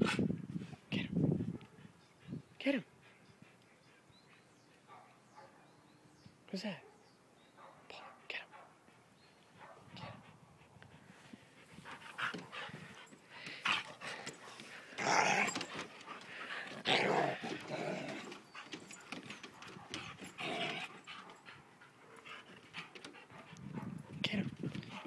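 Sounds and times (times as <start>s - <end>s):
dogs growling and snarling: 12.1s - 23.9s.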